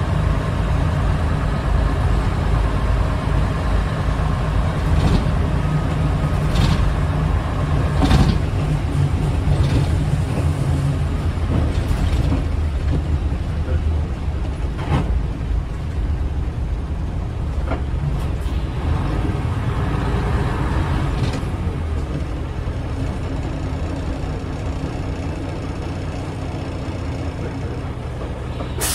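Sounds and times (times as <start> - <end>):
bus engine and road drone: 0.0 - 28.9
knocks from bus body: 4.9 - 5.4, 6.4 - 7.0, 7.9 - 8.7.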